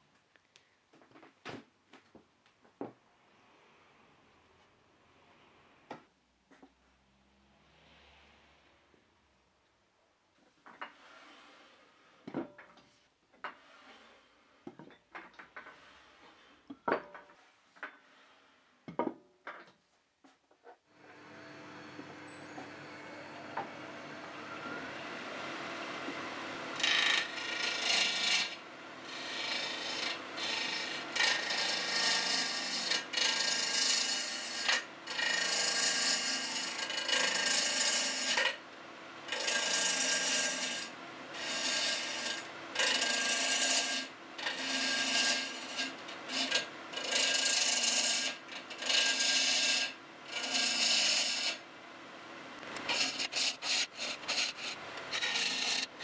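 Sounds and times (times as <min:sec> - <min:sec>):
wood lathe running: 0:22.8 - 0:38.6, 0:39.3 - 0:51.6, 0:52.8 - 0:56.0
gouge scraping spinning wood: 0:26.8 - 0:38.6, 0:39.3 - 0:51.6, 0:52.7 - 0:56.0.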